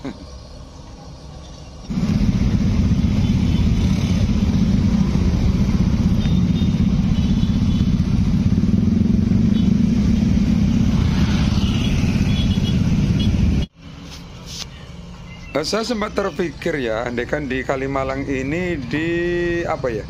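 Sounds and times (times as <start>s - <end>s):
motorcycle engine running: 1.9s - 13.7s.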